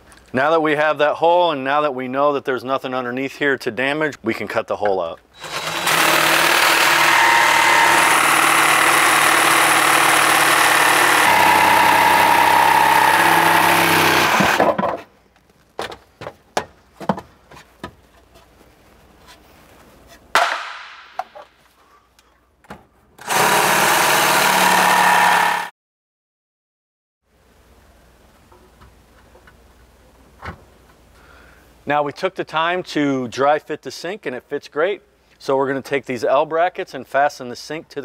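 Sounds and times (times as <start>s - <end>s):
jigsaw cutting: 5.4s - 14.8s, 23.2s - 25.7s.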